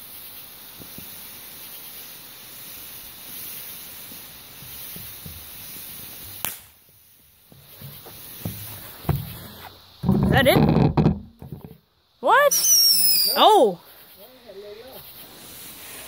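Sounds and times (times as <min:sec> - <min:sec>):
firework fountain hissing: 0:00.0 - 0:16.0
faint firework pops: 0:04.1 - 0:10.1
sharp crack: 0:06.3 - 0:06.9.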